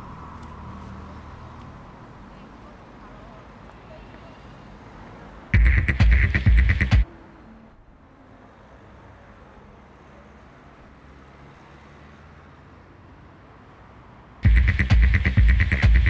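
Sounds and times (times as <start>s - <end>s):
distant road traffic hum: 0.0s - 16.0s
loud rhythmic burst: 5.6s - 7.0s, 14.4s - 16.0s.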